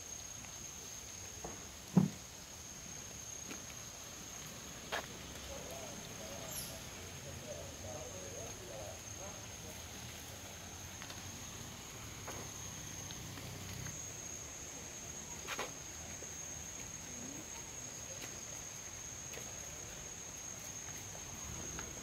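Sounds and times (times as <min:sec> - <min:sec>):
insects trilling: 0:00.0 - 0:22.0
short knock: 0:01.9 - 0:02.2.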